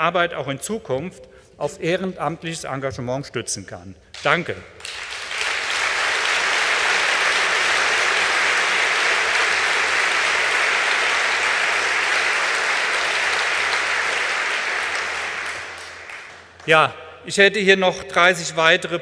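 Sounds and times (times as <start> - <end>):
audience applauding: 4.8 - 16.7.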